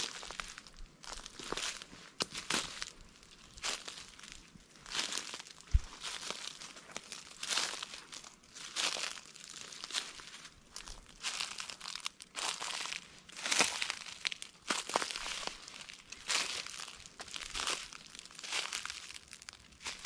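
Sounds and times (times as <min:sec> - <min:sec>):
footsteps crunching dry leaves: 0:00.0 - 0:20.0
low thump: 0:05.7 - 0:06.0.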